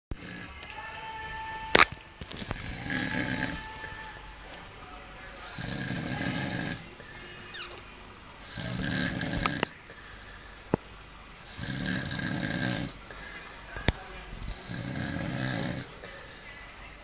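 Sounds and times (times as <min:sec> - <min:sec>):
man snoring: 0:00.1 - 0:00.6, 0:02.4 - 0:04.2, 0:05.4 - 0:07.2, 0:08.4 - 0:09.7, 0:11.4 - 0:13.3, 0:14.5 - 0:16.1.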